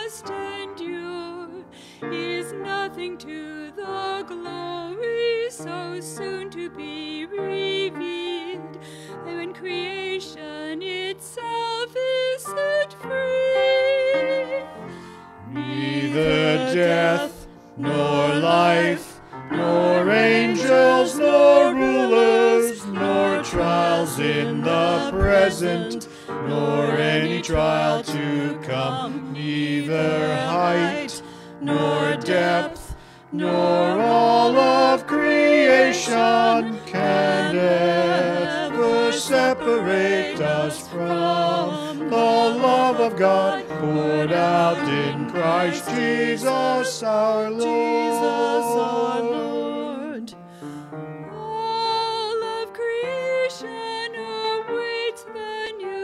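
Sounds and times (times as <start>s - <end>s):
group singing a hymn: 13.9s - 50.4s.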